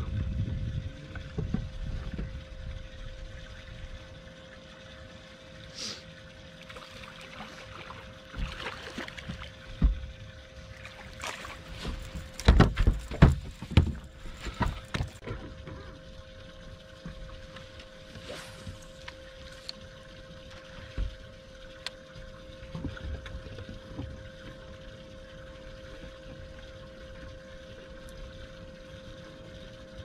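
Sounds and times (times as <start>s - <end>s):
faint steady hum: 0.0s - 30.0s
knocks and thumps against boat: 1.1s - 2.4s, 8.3s - 10.3s, 11.0s - 16.0s, 22.2s - 24.7s.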